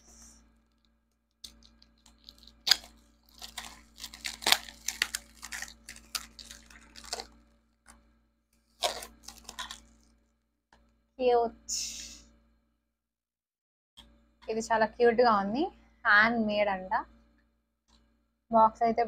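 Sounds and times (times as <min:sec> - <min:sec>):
packaging tearing and crinkling: 0:00.7 - 0:07.4, 0:08.8 - 0:10.1.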